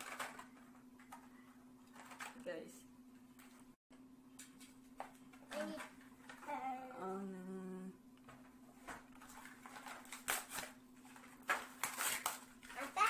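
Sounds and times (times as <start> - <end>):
person humming: 6.9 - 8.0
blister packs crackling: 9.2 - 13.0.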